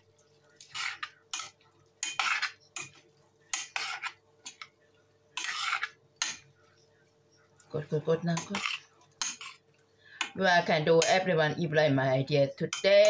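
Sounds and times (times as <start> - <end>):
metal spoon scraping saucepan: 0.6 - 4.6, 5.4 - 6.4, 8.3 - 9.6.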